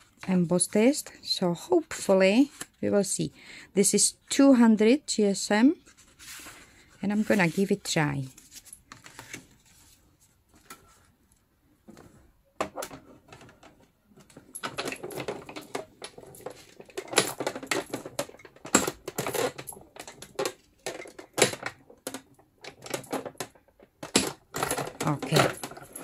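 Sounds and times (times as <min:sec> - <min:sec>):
hand-cranked machine clicking and knocking: 0:12.6 - 0:26.0.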